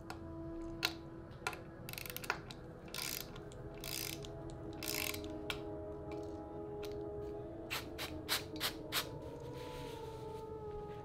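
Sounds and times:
ratchet pawl clicking: 1.9s - 5.3s.

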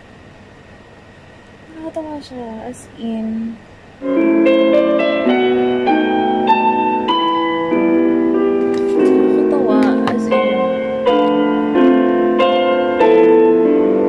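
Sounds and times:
instrumental piano music: 4.0s - 14.0s.

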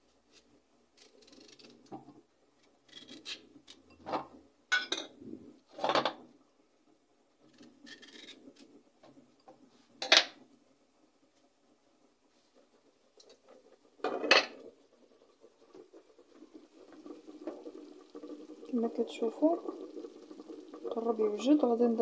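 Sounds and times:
knife scraping courgette skin: 1.0s - 1.9s, 2.8s - 3.4s.

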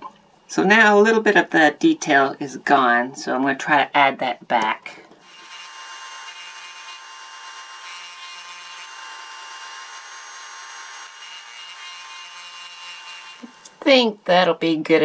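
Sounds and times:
rotary tool grinding plastic: 5.2s - 13.8s.

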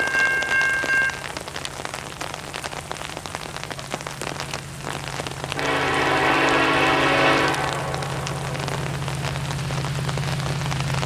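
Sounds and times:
railroad crossing bell ringing: 0.0s - 1.3s
raindrops ticking: 0.0s - 11.0s
steady rain: 0.0s - 11.0s.

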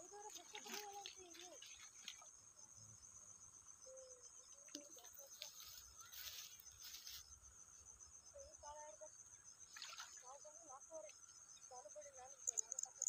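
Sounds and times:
insects trilling: 0.0s - 13.0s
rustling through leafy plants: 5.2s - 7.3s.

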